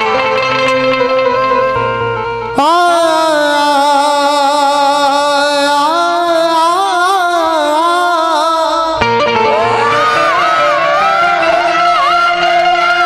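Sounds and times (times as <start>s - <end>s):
man singing through microphone: 2.6s - 13.0s.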